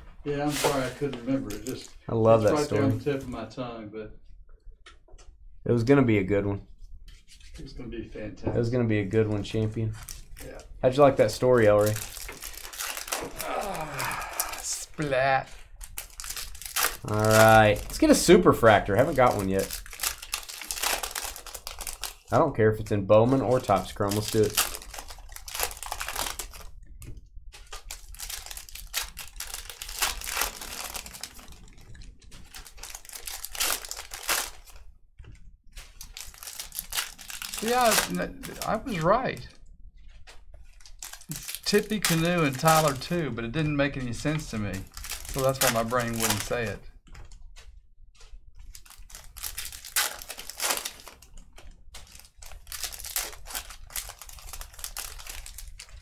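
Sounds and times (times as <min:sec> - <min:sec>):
foil wrappers crinkling: 0:00.4 - 0:03.0, 0:09.2 - 0:22.4, 0:23.1 - 0:26.9, 0:27.5 - 0:56.0
foil wrapper tearing: 0:00.5 - 0:02.9, 0:10.0 - 0:22.4, 0:23.4 - 0:26.8, 0:27.5 - 0:34.8, 0:35.7 - 0:39.2, 0:40.7 - 0:43.3, 0:44.2 - 0:46.8, 0:48.6 - 0:56.0.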